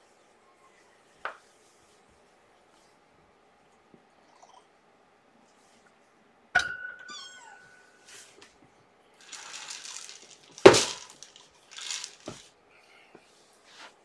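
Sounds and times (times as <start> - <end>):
rustling: 9.2 - 12.6.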